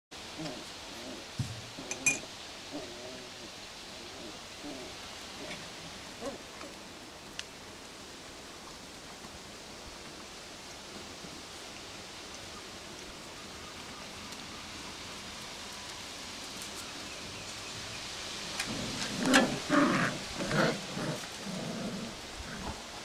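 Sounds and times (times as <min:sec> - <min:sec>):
outdoor hiss: 0:00.1 - 0:23.0
puppies growling and yapping: 0:18.5 - 0:22.8.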